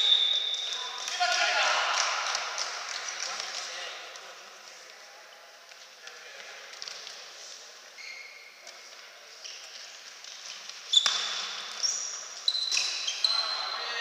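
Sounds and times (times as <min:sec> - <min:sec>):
shoes squeaking on floor: 0:00.0 - 0:01.2, 0:07.9 - 0:14.0.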